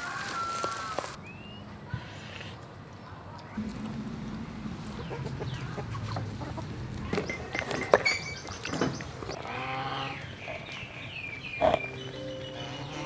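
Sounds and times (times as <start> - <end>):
chickens clucking: 3.6 - 13.0.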